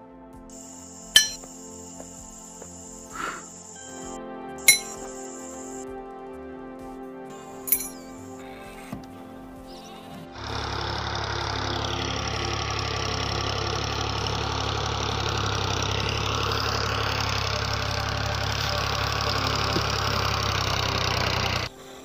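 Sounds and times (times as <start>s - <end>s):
tractor diesel engine running: 1.1s - 1.4s, 4.7s - 5.0s, 9.7s - 22.0s.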